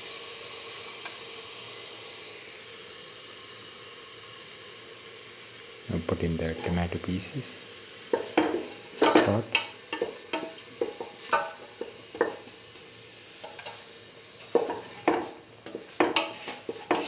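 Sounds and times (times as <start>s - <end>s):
food sizzling: 0.0s - 17.0s
utensil scraping a steel pan: 14.5s - 17.0s.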